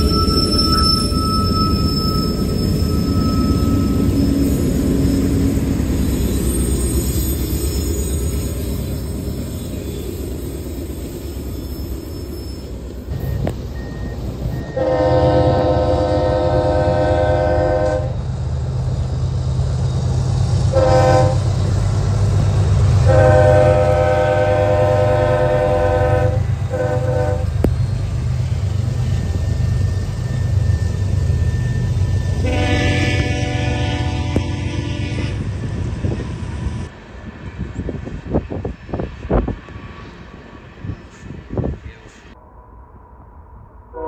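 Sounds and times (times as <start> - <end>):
train air horn blasts: 14.6 - 18.2, 20.7 - 21.5, 23.0 - 27.6, 32.4 - 35.6.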